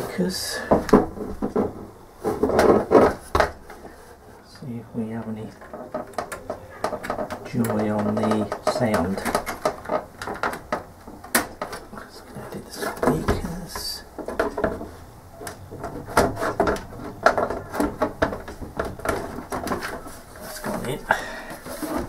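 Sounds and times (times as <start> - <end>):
plastic case knocking and clicking: 5.5 - 14.9, 15.5 - 21.1.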